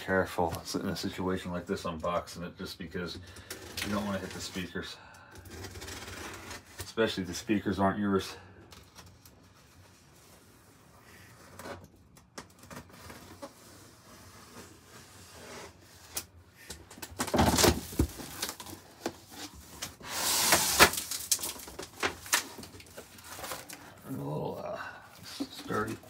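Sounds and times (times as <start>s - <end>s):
cardboard scraping and rustling: 12.6s - 24.0s, 25.2s - 26.0s.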